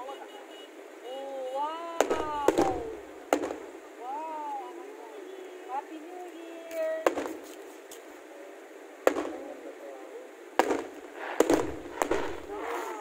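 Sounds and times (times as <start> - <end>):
fireworks bursting with sharp bangs: 2.0 - 3.9, 6.7 - 8.1, 9.0 - 13.0.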